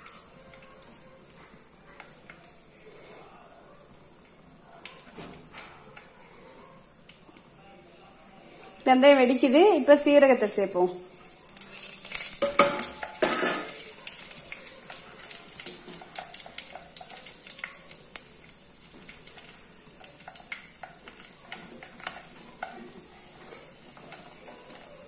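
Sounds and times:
seeds sizzling in hot oil: 8.4s - 25.0s.

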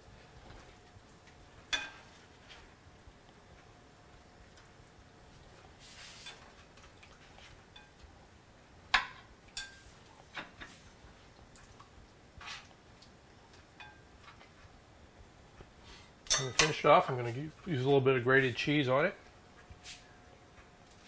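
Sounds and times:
spatula scraping skillet: 5.8s - 8.0s, 12.4s - 12.8s.

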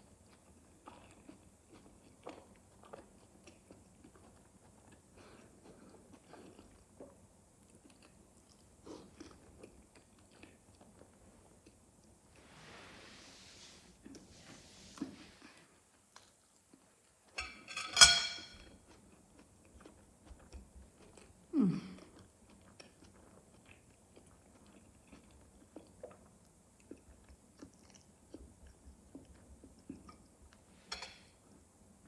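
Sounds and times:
wet chewing clicks: 22.0s - 30.6s.

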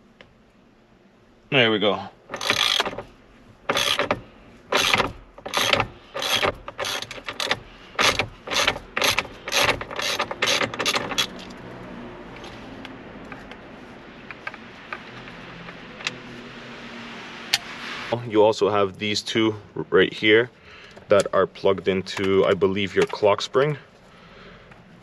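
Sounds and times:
ratchet wrench clicking: 2.3s - 3.1s, 3.7s - 11.6s.

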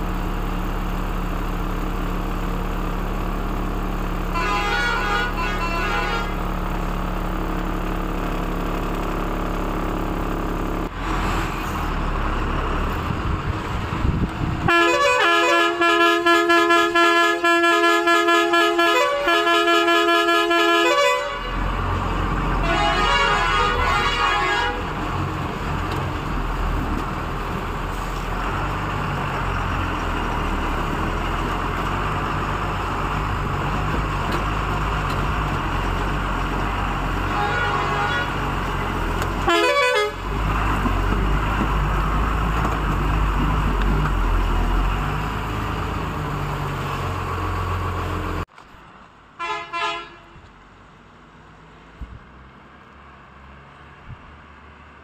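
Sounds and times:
truck engine running: 0.0s - 49.2s
multi-tone truck horn pulses: 4.2s - 7.1s, 14.4s - 25.3s, 36.6s - 41.1s, 49.4s - 50.4s.

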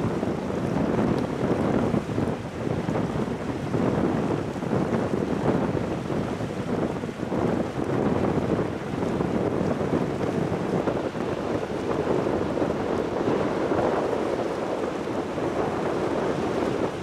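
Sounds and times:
wind on microphone: 0.0s - 17.0s
ferry engine rumble and wash: 6.7s - 17.0s.

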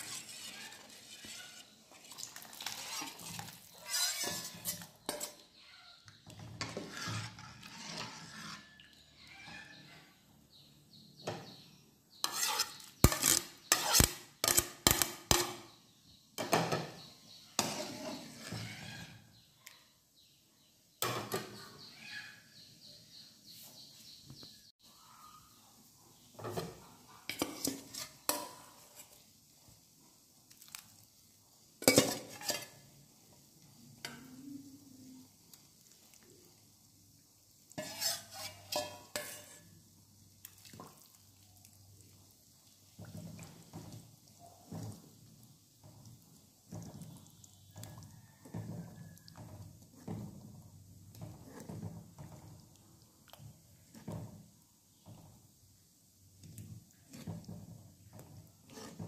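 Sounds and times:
metal ladle scraping and clinking: 0.0s - 5.6s, 6.2s - 9.8s, 12.2s - 15.7s, 17.6s - 19.2s, 27.3s - 29.2s, 31.8s - 32.8s, 37.8s - 39.8s, 57.1s - 59.0s.

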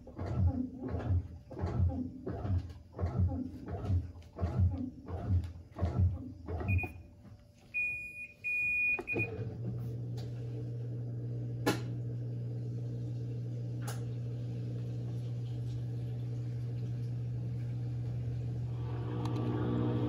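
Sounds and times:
washing machine churning: 0.0s - 7.2s, 7.8s - 20.0s
control panel beeps: 6.7s - 7.0s, 7.8s - 9.4s
motor humming: 9.0s - 20.0s
click: 13.8s - 14.0s, 19.2s - 19.5s.

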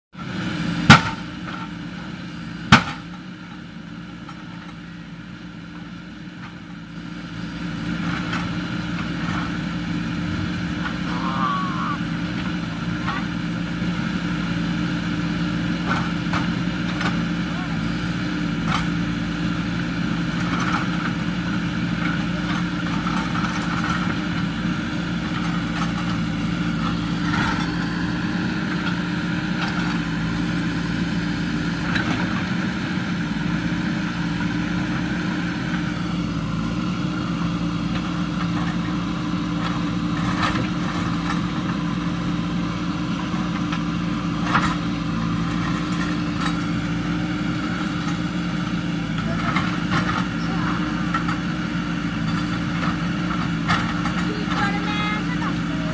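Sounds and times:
diesel engine running: 0.1s - 55.9s.

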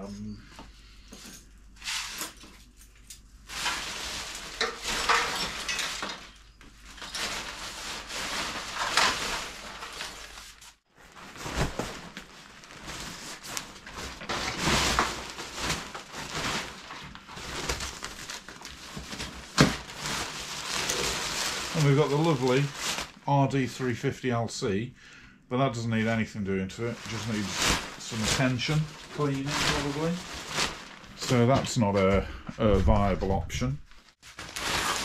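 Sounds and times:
motorcycle cover rustling: 3.5s - 23.2s, 26.9s - 31.6s, 34.1s - 35.0s.

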